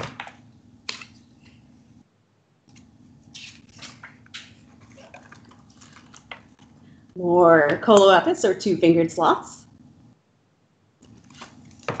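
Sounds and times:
low steady hum: 0:00.0 - 0:12.0
book pages turning: 0:02.7 - 0:06.8, 0:11.0 - 0:12.0.

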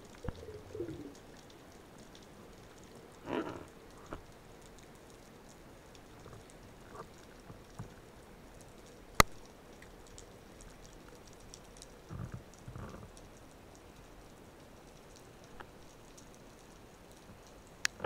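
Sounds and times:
faint underwater hiss: 0:00.0 - 0:01.4
small clicks and crackles: 0:00.0 - 0:18.0.

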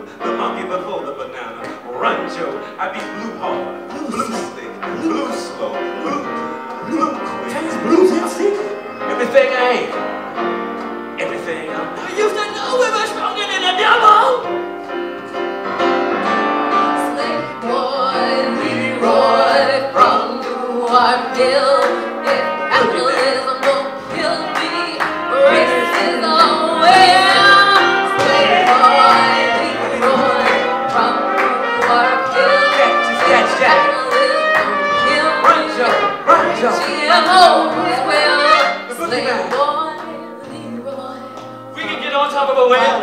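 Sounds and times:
keyboard: 0:00.0 - 0:43.0
people singing: 0:11.2 - 0:14.5, 0:16.2 - 0:43.0
saxophone: 0:13.5 - 0:41.7
upright bass: 0:16.9 - 0:39.8.

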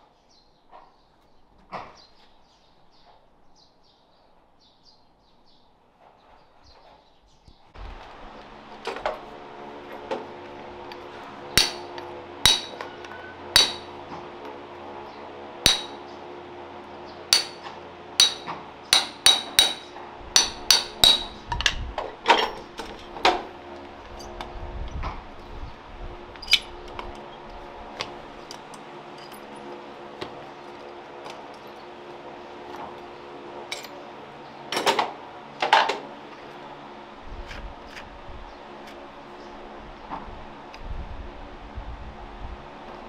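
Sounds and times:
low hum: 0:07.7 - 0:43.0
hammer striking metal: 0:11.5 - 0:14.0, 0:15.6 - 0:16.1, 0:17.3 - 0:21.5.

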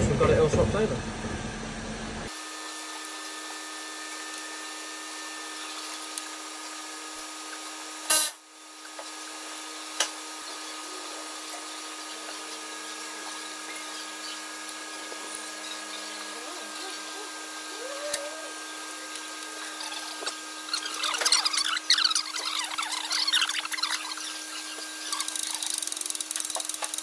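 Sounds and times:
workshop hum: 0:00.0 - 0:27.0.

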